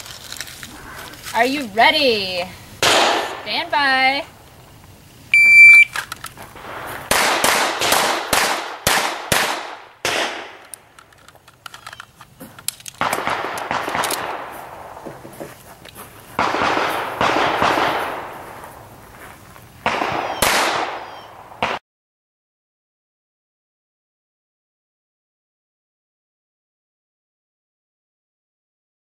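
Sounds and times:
pistol shots with echo: 0:02.8 - 0:03.5, 0:06.6 - 0:10.7, 0:13.0 - 0:15.1, 0:16.4 - 0:18.6, 0:19.8 - 0:21.8.

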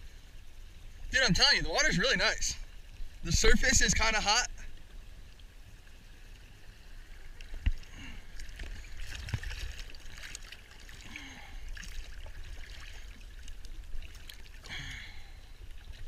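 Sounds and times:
water sloshing and splashing: 0:04.6 - 0:16.0.

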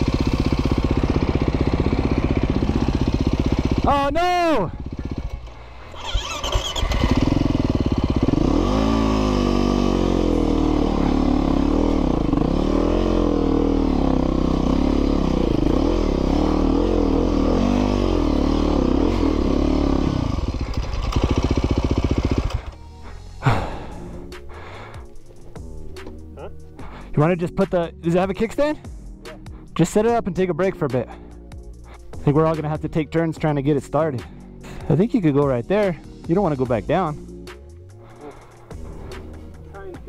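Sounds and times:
dirt bike engine revving: 0:00.0 - 0:04.1, 0:04.7 - 0:22.8.

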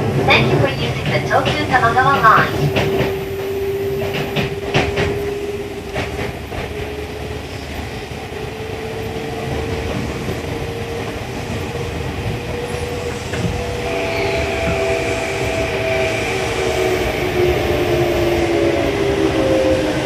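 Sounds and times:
rumble of train wheels: 0:00.0 - 0:20.0.

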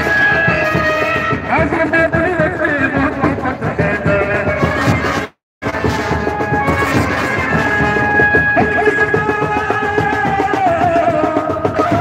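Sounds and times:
steady drumming: 0:00.0 - 0:12.0
wind instrument melody: 0:00.0 - 0:12.0.

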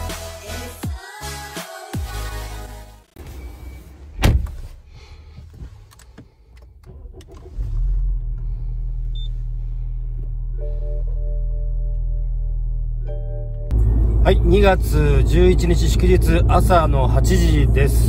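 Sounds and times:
car engine starting and idling: 0:03.0 - 0:18.0
loud thump: 0:04.2 - 0:04.8.

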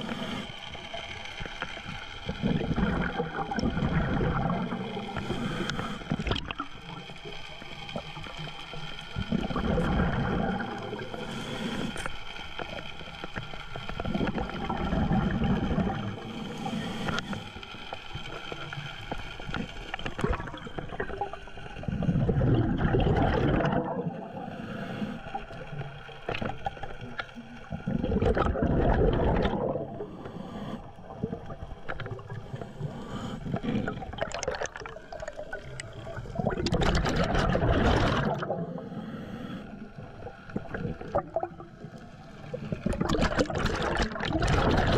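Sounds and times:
exhaled bubbles gurgling: 0:00.0 - 0:39.0, 0:39.6 - 0:44.9
regulator hiss: 0:04.6 - 0:14.5, 0:15.2 - 0:20.2.

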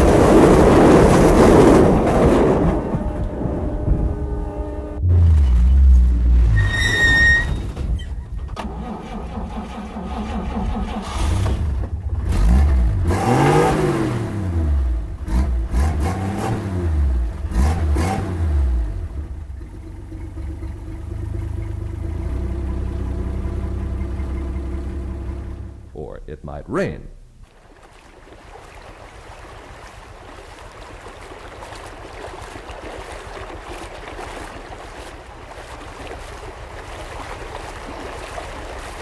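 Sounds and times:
engine revving: 0:08.6 - 0:19.3.

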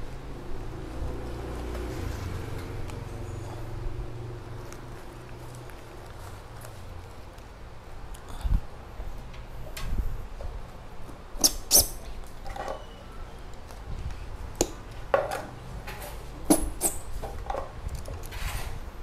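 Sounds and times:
potted plants being handled: 0:04.5 - 0:07.7.

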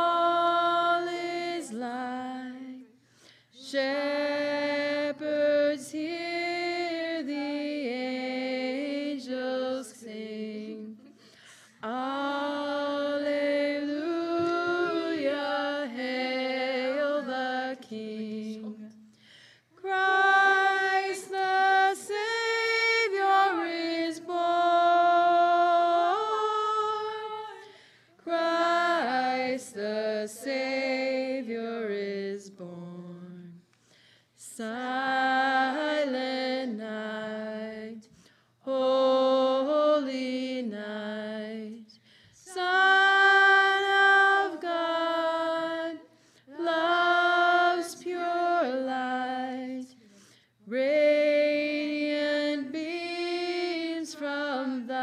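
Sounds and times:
women and girls singing a carol: 0:00.0 - 0:19.2, 0:19.8 - 0:33.7, 0:34.4 - 0:55.0.

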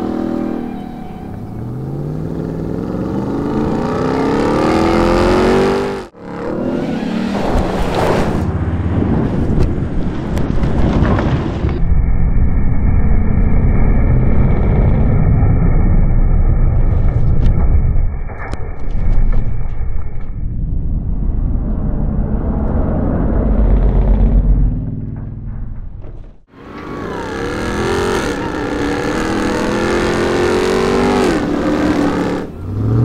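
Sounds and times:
engine accelerating hard: 0:00.0 - 0:10.8, 0:21.0 - 0:33.0.

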